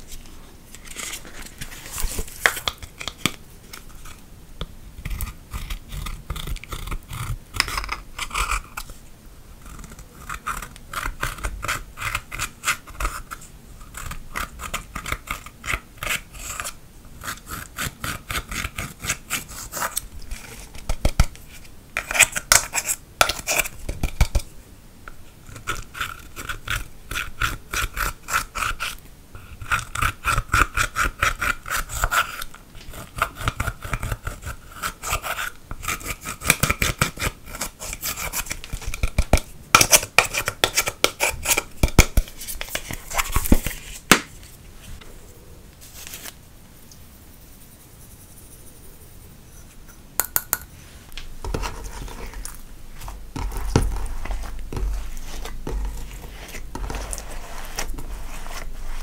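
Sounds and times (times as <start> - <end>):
metal tool scratching eyeshadow: 5.0 - 9.0, 9.6 - 24.4, 25.4 - 43.9, 51.4 - 59.0.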